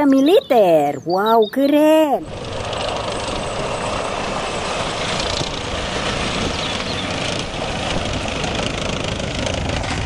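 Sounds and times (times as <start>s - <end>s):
tank engine running: 2.2s - 10.0s.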